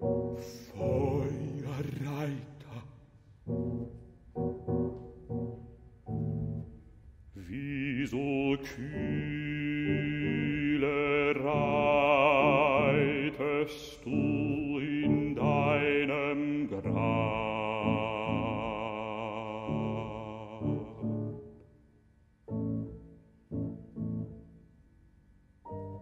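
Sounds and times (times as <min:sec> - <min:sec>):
baritone singing with vibrato: 0:00.0 - 0:03.8, 0:07.4 - 0:21.6
grand piano accompaniment: 0:00.0 - 0:19.0, 0:22.5 - 0:24.6, 0:25.6 - 0:26.0.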